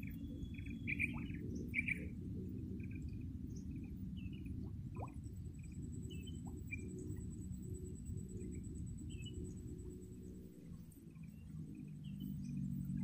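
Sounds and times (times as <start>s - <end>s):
bird chirps: 0.3s - 2.0s.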